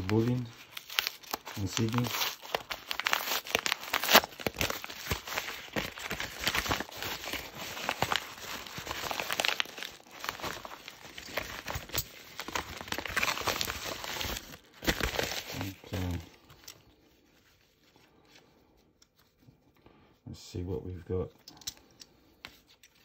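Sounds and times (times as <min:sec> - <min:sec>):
parcel packaging torn and crinkled: 0:00.0 - 0:16.9.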